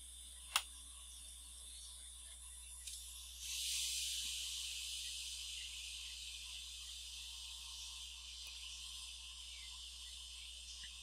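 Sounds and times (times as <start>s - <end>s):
hot air blower hissing: 3.3s - 10.4s.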